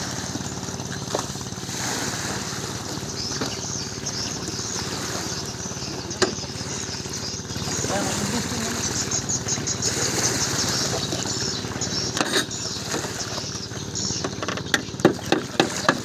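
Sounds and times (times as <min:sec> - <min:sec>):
small boat engine idling: 0:00.0 - 0:16.0
sharp knocks: 0:14.2 - 0:16.0.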